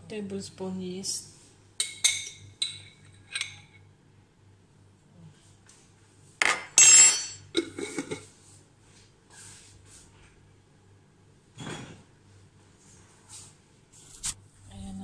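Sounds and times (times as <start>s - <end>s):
kitchenware clatter: 1.8s - 3.8s, 6.4s - 8.3s, 11.5s - 12.1s
metallic clink ringing: 6.8s - 7.5s.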